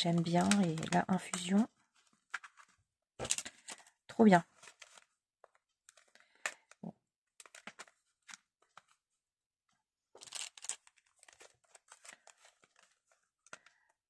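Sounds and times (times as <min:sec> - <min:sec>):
paper rustling and crinkling: 0:00.0 - 0:06.8, 0:07.4 - 0:09.0, 0:10.2 - 0:14.0.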